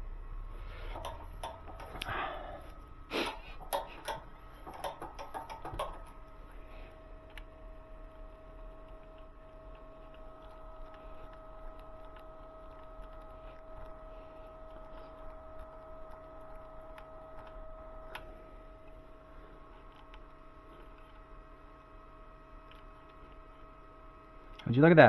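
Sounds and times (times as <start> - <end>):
screwdriver clicks and taps: 0.9 - 2.1, 3.6 - 6.2.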